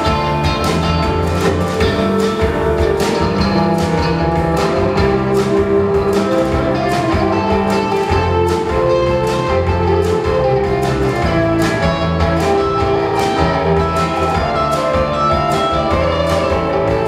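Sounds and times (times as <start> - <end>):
drum kit beat with cymbals: 0.0 - 17.0
electric guitars: 0.0 - 17.0.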